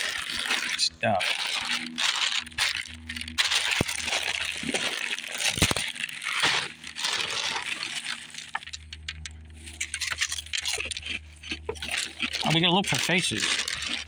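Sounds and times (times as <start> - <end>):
dry cereal rattling: 0.0 - 14.0
plastic bag crinkling: 0.0 - 14.0.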